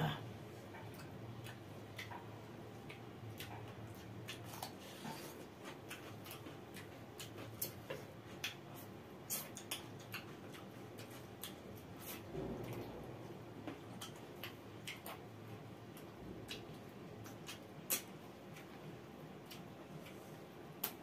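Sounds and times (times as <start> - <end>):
fingers mixing food on plates: 0.5 - 12.3
wet chewing sounds: 0.6 - 12.4, 13.7 - 21.0.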